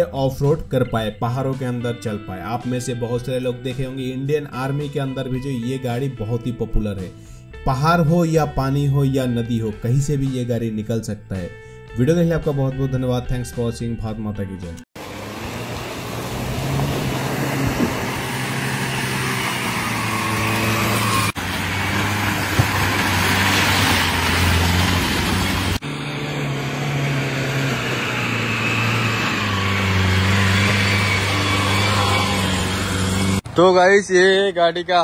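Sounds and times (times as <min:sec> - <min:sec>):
car engine running hard: 0:15.0 - 0:33.6
mud and tyre rush: 0:15.0 - 0:33.8.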